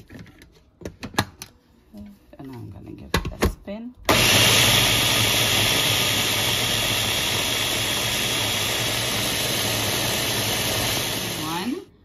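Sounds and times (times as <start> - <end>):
food chopper whirring: 4.1 - 11.8.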